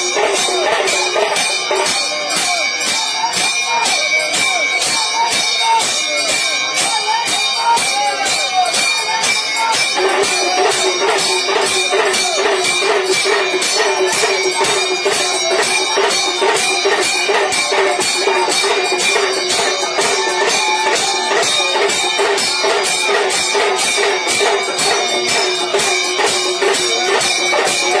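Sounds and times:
metal percussion struck rhythmically: 0.0 - 28.0.

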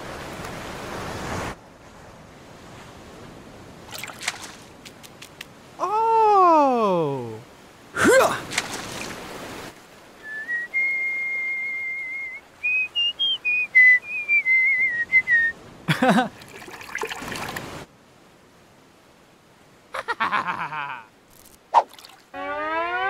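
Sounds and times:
person whistling a tune: 10.2 - 15.6.

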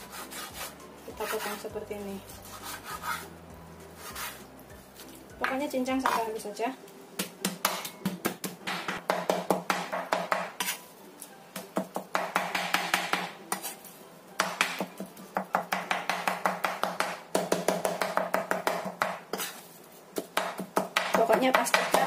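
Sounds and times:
knife chopping on cutting board: 7.2 - 10.8, 14.4 - 19.6, 20.2 - 22.0.

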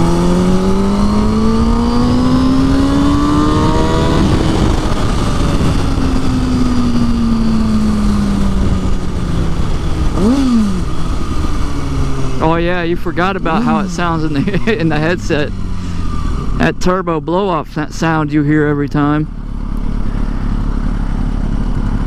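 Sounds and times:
wind rush: 0.0 - 16.8
motorcycle engine revving: 0.0 - 22.0.

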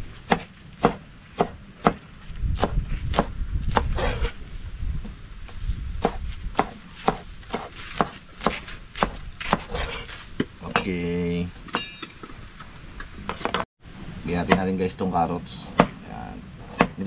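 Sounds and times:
knife chopping on cutting board: 0.2 - 2.0, 2.6 - 4.3, 6.0 - 10.1, 16.6 - 17.0.

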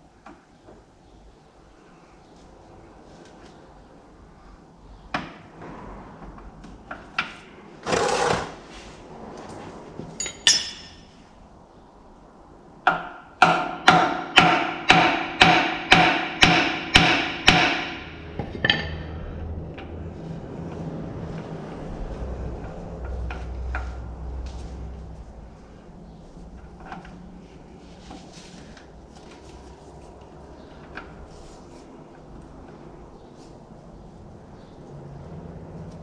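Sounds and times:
hammer striking metal: 10.2 - 11.1, 12.9 - 19.3.

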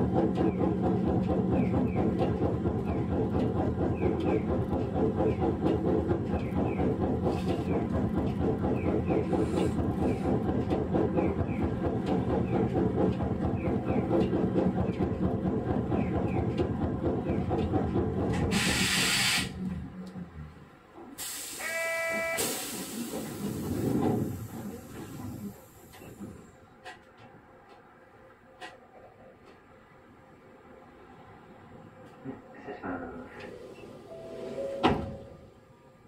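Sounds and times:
streetcar motors and wheels rumbling: 0.0 - 36.0
air hiss: 18.6 - 19.5, 22.4 - 23.9
brief beep: 34.1 - 35.3.

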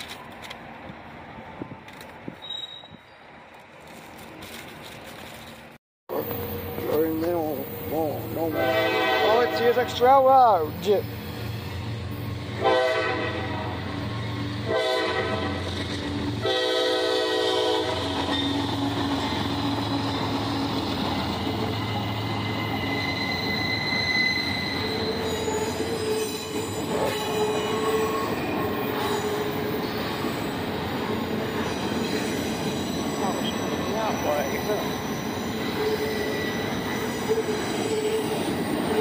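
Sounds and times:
train rumbling past: 0.0 - 39.0
steel wheel squeals: 2.4 - 3.3, 21.2 - 30.6, 31.6 - 39.0
train horn blasts: 8.4 - 10.3, 12.4 - 13.9, 14.6 - 18.4.

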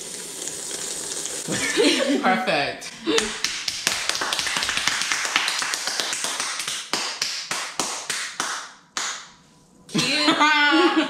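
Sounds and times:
people clapping: 3.1 - 9.4.

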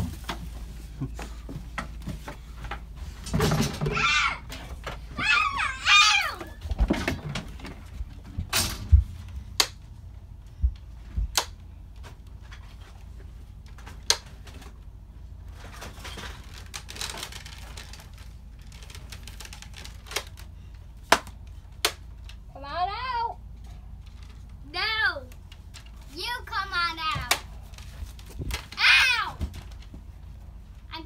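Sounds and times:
soft rustling of movement: 23.4 - 31.0.

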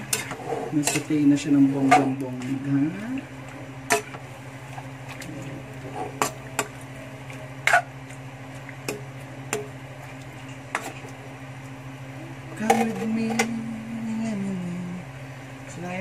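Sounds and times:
spatula scraping metal wok: 0.0 - 1.2
steady low hum: 0.0 - 16.0.

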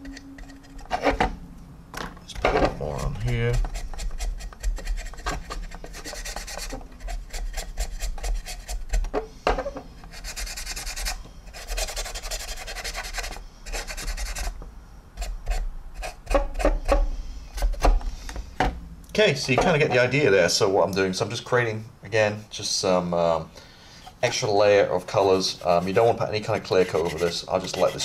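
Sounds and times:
stiff brush scrubbing plastic: 2.7 - 9.1, 10.0 - 14.6, 24.1 - 28.0.

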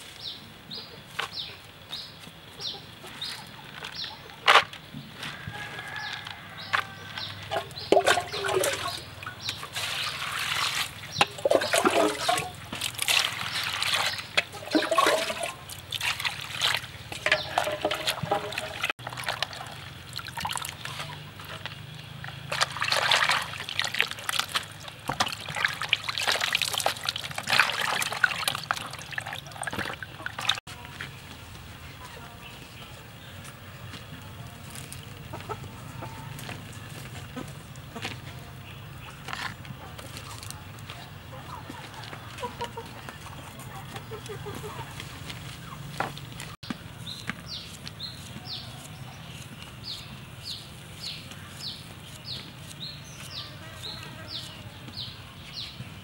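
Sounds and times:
water sloshing and splashing: 7.1 - 30.6.

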